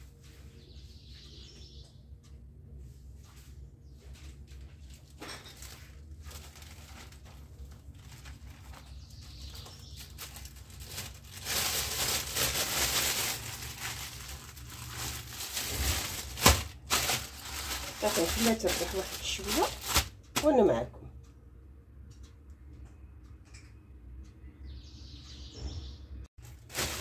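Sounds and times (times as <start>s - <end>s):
steady low hum: 0.0s - 25.3s
plastic bag crinkling: 4.5s - 20.5s, 26.4s - 27.0s.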